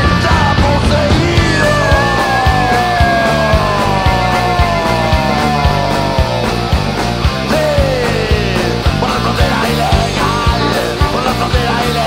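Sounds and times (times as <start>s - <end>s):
rock band playing: 0.0s - 12.0s
gliding lead guitar notes: 1.8s - 7.5s.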